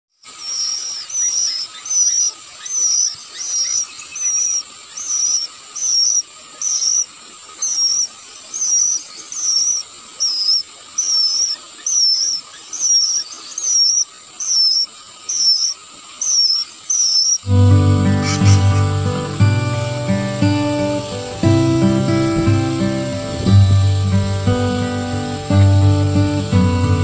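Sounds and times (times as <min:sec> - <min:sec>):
nestlings chirping: 0:00.4 - 0:27.0.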